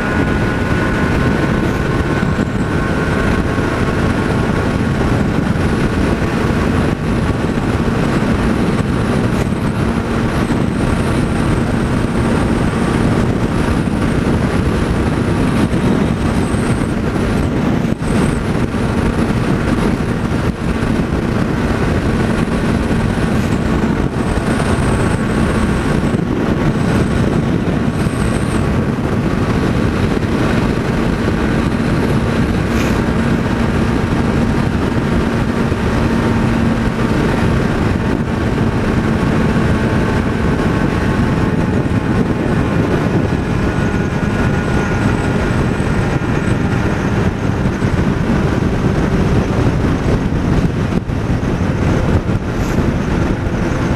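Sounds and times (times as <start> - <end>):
motorcycle engine drone: 0.0 - 53.9
wind rushing over microphone: 0.0 - 53.9.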